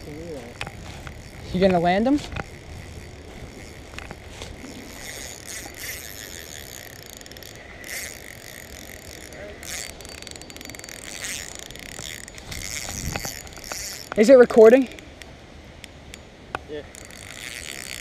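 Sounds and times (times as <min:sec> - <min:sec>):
fishing reel ratcheting tick: 0:00.0 - 0:18.0.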